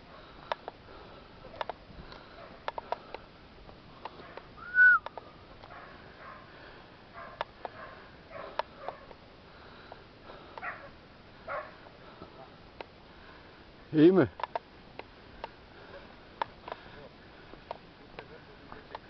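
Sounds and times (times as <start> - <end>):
distant dogs barking: 4.0 - 4.7, 5.6 - 9.2, 10.3 - 12.1
short whistle: 4.6 - 5.1.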